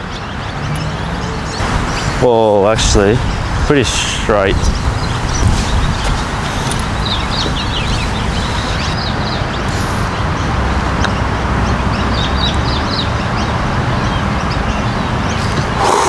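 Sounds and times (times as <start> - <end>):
small birds chirping: 0.0 - 16.0
wind rumbling over microphone: 1.6 - 11.2.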